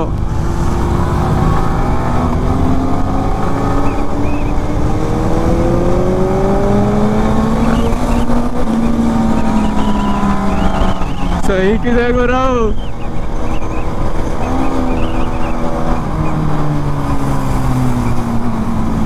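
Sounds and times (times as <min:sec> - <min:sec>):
motorcycle engine accelerating: 0:00.0 - 0:19.0.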